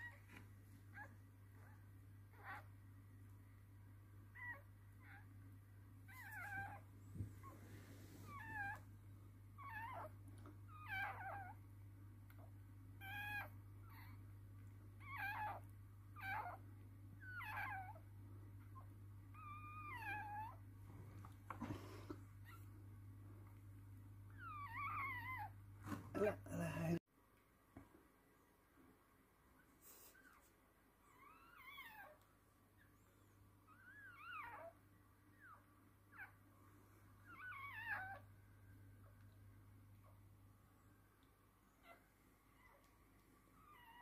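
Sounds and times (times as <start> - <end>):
low steady hum: 0.0 - 44.0
puppy crying squeaks: 9.6 - 10.1, 10.7 - 11.6, 13.0 - 14.2, 15.0 - 15.6, 16.2 - 16.6, 17.2 - 18.0, 19.4 - 20.6, 24.4 - 25.6, 33.7 - 34.8, 37.3 - 38.2.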